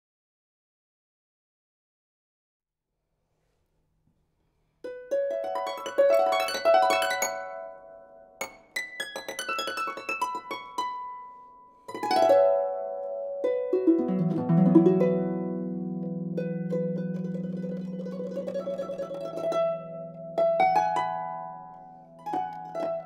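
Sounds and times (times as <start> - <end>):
harp playing: 4.8 - 23.0.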